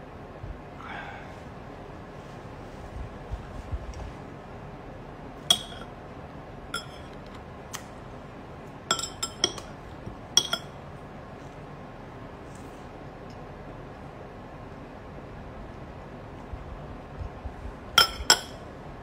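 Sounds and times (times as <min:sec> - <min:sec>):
metal chopsticks clinking on bowls: 0:05.5 - 0:05.9, 0:06.8 - 0:07.2, 0:08.9 - 0:09.7, 0:10.4 - 0:10.7.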